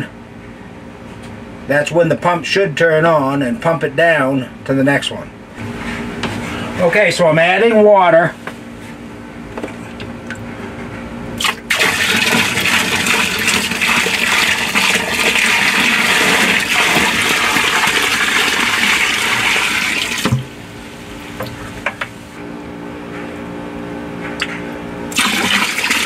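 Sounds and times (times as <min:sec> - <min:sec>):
water pouring from bucket: 0:11.4 - 0:20.4, 0:25.1 - 0:26.0.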